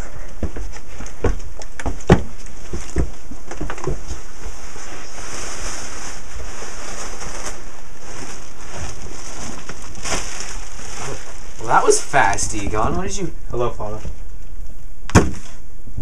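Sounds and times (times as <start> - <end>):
footsteps walking away: 0.0 - 4.7
room noise hiss: 0.0 - 16.0.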